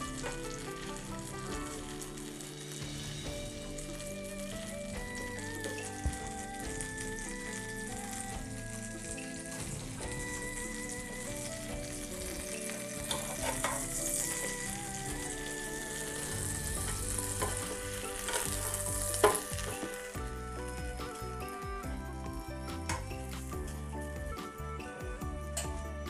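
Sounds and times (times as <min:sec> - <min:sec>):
bread sizzling on grill pan: 0:00.0 - 0:21.6
background music: 0:00.0 - 0:26.0
spatula scraping and knocking pan: 0:11.8 - 0:20.3.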